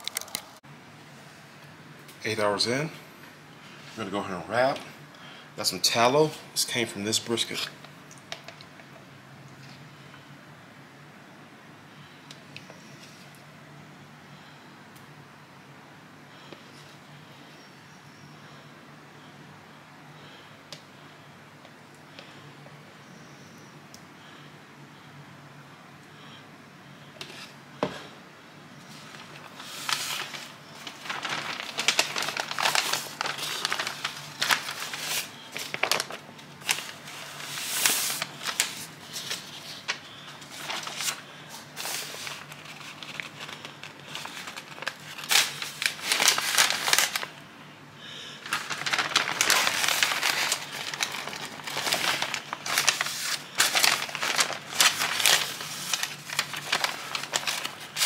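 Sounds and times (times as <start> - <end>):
paper rustling and crinkling: 28.8 - 47.4, 48.4 - 58.0.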